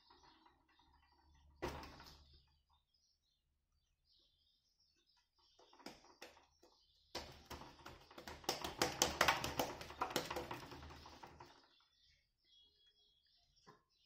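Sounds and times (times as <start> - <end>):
hands slapping dough: 7.2 - 10.9.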